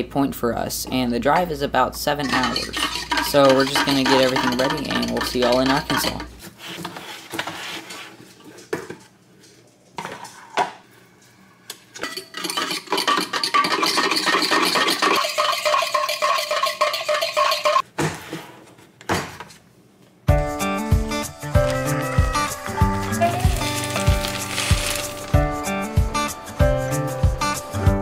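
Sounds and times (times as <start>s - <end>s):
dishes and cutlery clattering: 2.2s - 6.3s, 12.0s - 17.8s.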